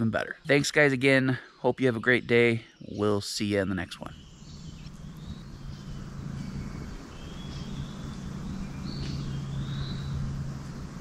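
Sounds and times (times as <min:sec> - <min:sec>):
steady low hum: 0:00.0 - 0:11.0
birds singing whistled phrases: 0:03.9 - 0:11.0.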